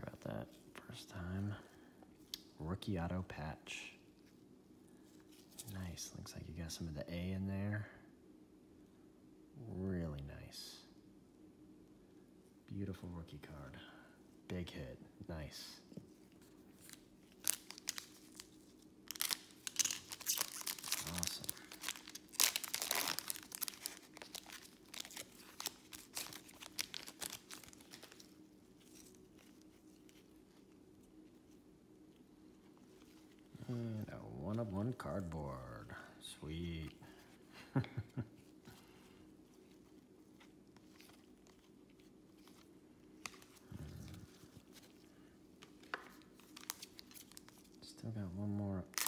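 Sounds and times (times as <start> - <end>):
faint steady background: 0.0 - 49.0
trading cards being flipped: 16.2 - 30.7
foil wrapper crinkling and tearing: 16.8 - 30.7, 45.7 - 47.8.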